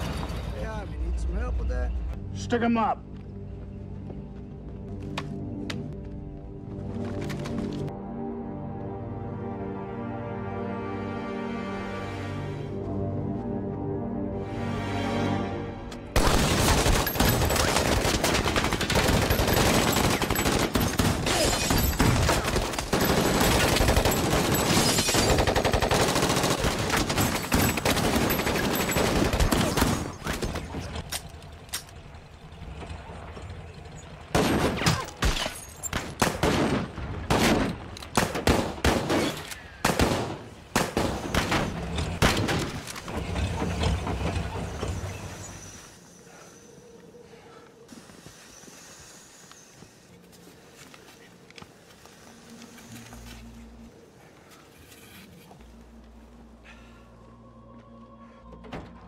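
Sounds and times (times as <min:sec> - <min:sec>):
single gunshots and bursts: 0:34.4 - 0:42.9.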